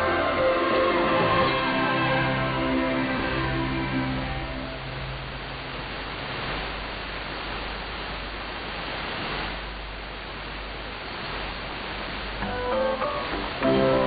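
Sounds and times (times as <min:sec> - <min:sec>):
held music notes over radio: 0:00.0 - 0:05.3, 0:12.4 - 0:14.0
radio hiss and static: 0:00.0 - 0:14.0.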